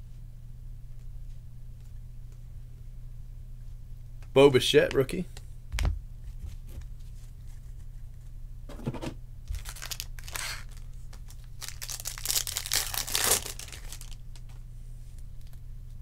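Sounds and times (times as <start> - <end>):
steady low hum: 0.0 - 16.0
foil pack tearing and crinkling: 9.5 - 14.3.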